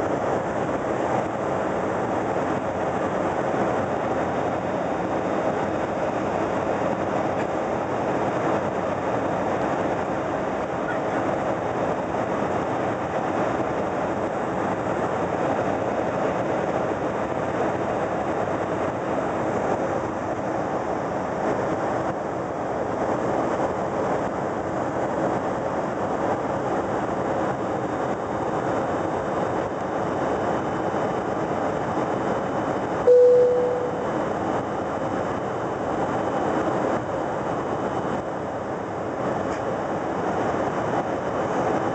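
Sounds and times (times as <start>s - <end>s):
airliner cabin engine drone: 0.0s - 41.9s
cabin chime: 33.1s - 34.1s.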